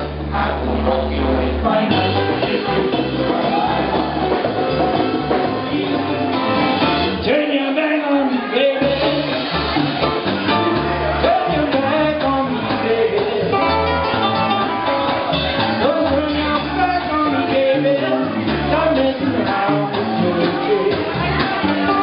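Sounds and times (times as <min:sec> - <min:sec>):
man singing: 0:00.0 - 0:09.8, 0:11.0 - 0:14.2, 0:15.6 - 0:22.0
bass guitar: 0:00.0 - 0:22.0
drums: 0:00.0 - 0:22.0
ukulele: 0:08.8 - 0:22.0.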